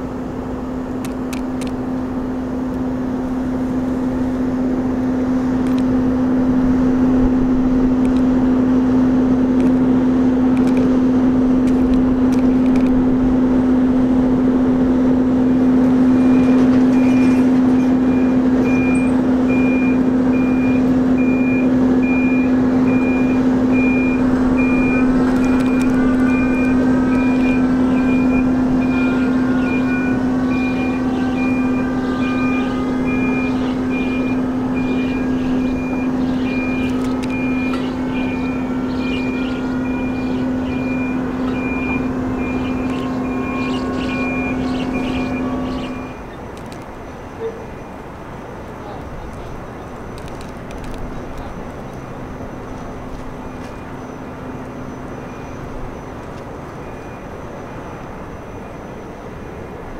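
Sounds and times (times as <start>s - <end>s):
diesel engine humming: 0.0s - 59.9s
backup alarm beeping: 15.6s - 59.8s.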